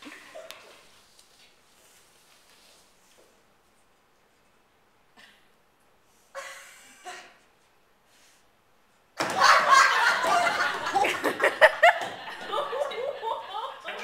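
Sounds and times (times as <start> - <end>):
people laughing loudly: 9.2 - 14.0.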